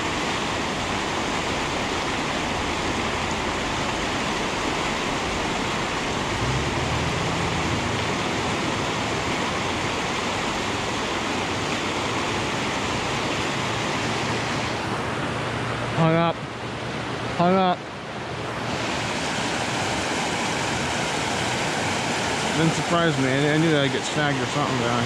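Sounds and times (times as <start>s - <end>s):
whitewater rapids rushing: 0.0s - 25.0s.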